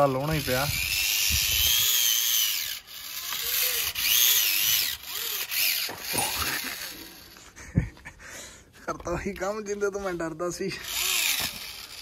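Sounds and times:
electric toy motor whining: 0.0s - 7.8s, 10.7s - 12.0s.

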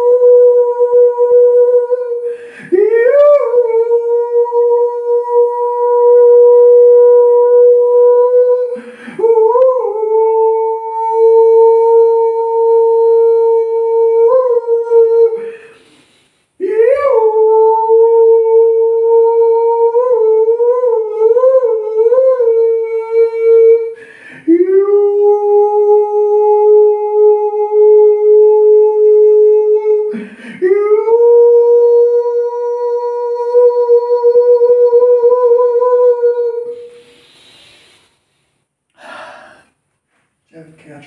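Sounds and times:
breathy hiss: 15.4s - 16.6s, 36.7s - 40.2s.

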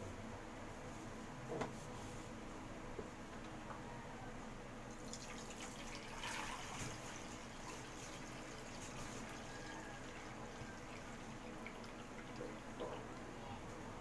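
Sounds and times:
liquid splashing and trickling: 4.9s - 13.3s
liquid dripping through mesh: 5.0s - 13.3s.

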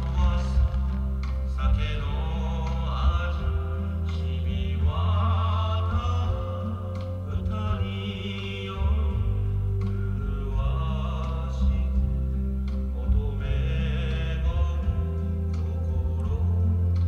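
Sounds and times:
chant-like singing voices: 0.0s - 17.0s
deep steady bass: 0.0s - 17.0s.

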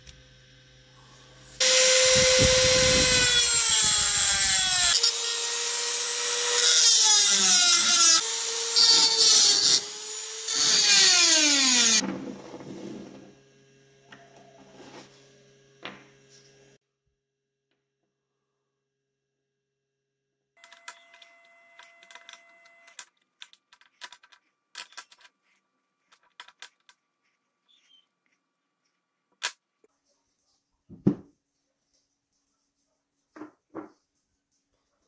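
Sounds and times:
power tool motor whining: 1.4s - 12.0s.

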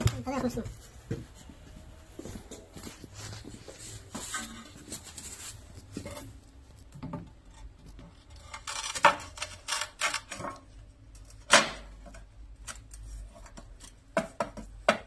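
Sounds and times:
shuffling: 0.0s - 6.4s.

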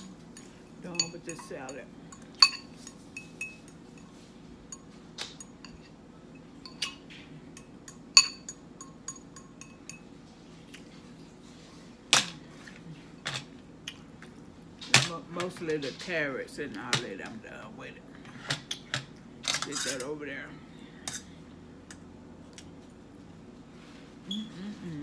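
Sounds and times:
fork clinking on glass bowl: 0.0s - 4.1s, 6.6s - 10.1s.

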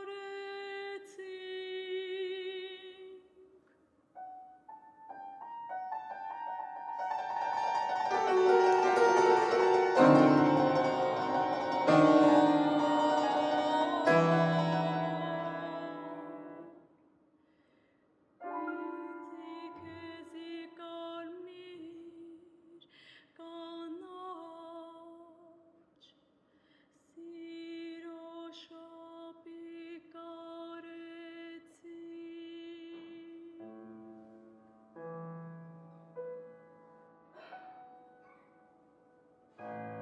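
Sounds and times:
soprano singing with vibrato: 0.0s - 3.5s, 8.4s - 16.8s, 18.5s - 22.8s, 23.4s - 25.6s, 27.1s - 33.9s
piano: 4.1s - 16.8s, 18.4s - 21.7s, 32.3s - 40.0s
piano chord: 5.6s - 16.7s.

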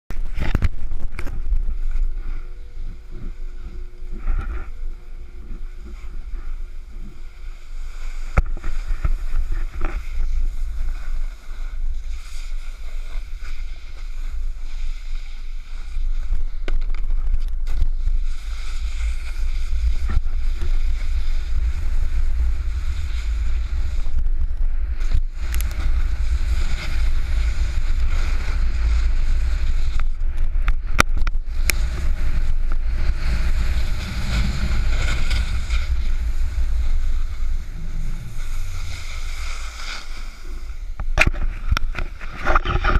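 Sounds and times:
snowboard scraping over snow: 0.1s - 42.9s
wind buffeting microphone: 15.9s - 42.9s.

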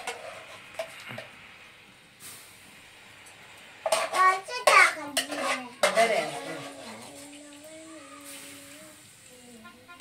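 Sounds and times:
young child's voice: 4.0s - 5.9s, 6.8s - 10.0s.

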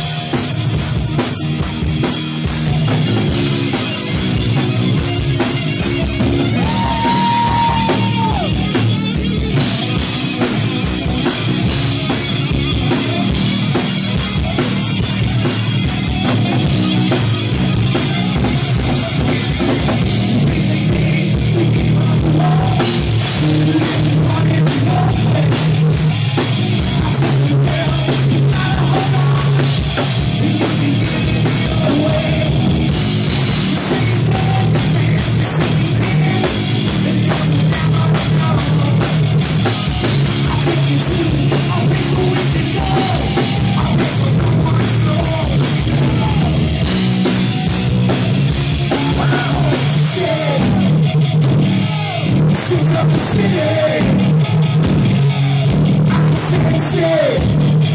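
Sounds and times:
drum kit: 0.0s - 57.9s
electric guitar: 0.0s - 57.9s
person singing: 17.9s - 26.0s, 26.8s - 32.8s, 33.4s - 46.7s, 48.7s - 51.0s, 51.9s - 54.5s, 56.1s - 57.6s.

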